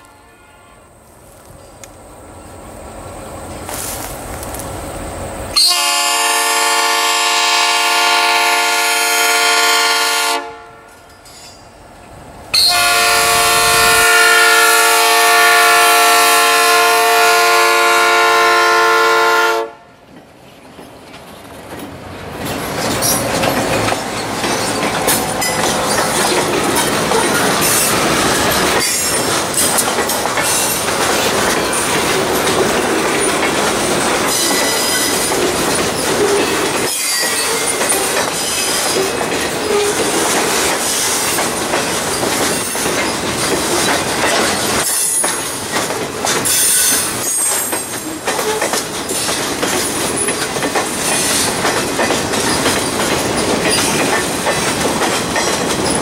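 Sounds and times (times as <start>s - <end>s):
locomotive horn blasts: 0.0s - 1.0s, 5.6s - 11.0s, 12.6s - 19.9s
train wheels clicking over rail joints: 20.0s - 56.0s.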